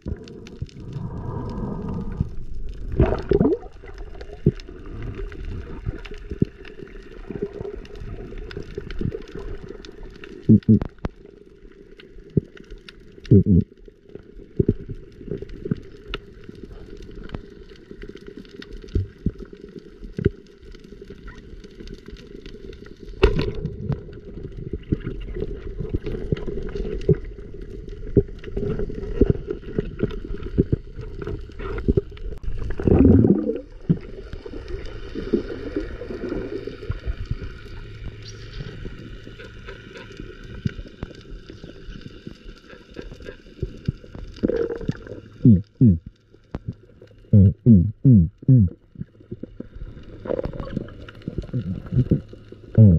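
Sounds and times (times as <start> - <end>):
water gurgling underwater: 0.0 - 11.4, 12.2 - 13.8, 23.2 - 41.8, 42.6 - 52.9.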